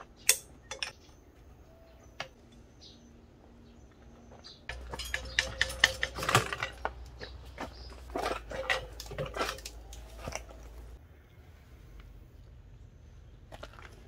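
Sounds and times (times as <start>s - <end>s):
metal clanks and clinks: 0.2s - 1.0s, 4.7s - 11.0s.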